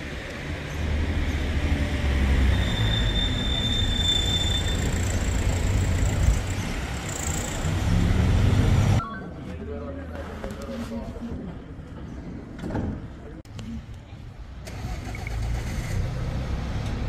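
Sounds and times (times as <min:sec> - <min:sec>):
vehicle engine driving off: 0:14.6 - 0:17.0.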